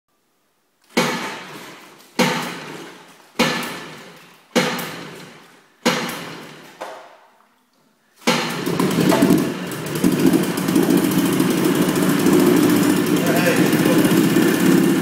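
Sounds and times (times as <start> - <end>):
outboard motor pull-start bursts: 8.2 - 15.0.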